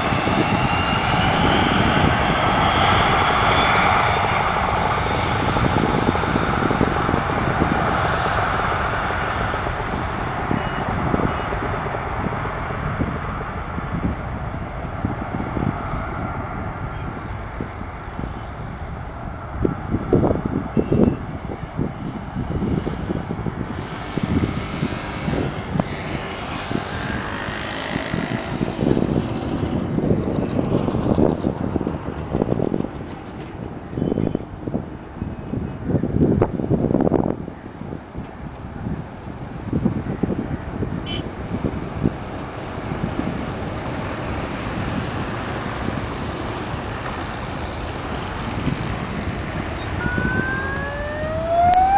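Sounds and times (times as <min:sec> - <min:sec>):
aircraft engine taking off: 0:00.0 - 0:51.9
wind buffeting microphone: 0:00.0 - 0:51.9.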